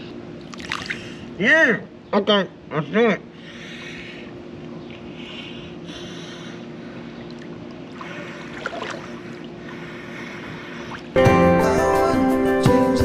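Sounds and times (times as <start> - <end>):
steady hum: 0.0 - 12.4
water sloshing and splashing: 0.4 - 1.2, 7.2 - 11.2.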